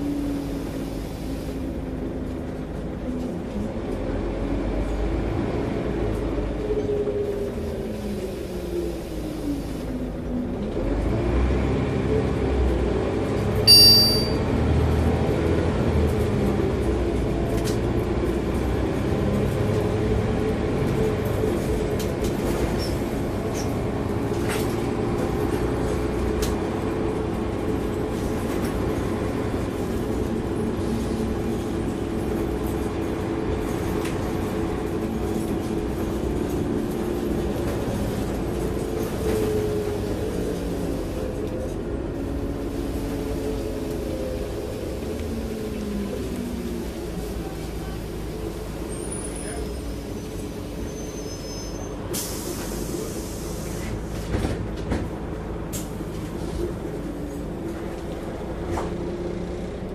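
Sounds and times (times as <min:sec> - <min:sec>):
bus engine drone: 0:00.0 - 0:59.9
short high electronic beep: 0:13.7 - 0:14.4.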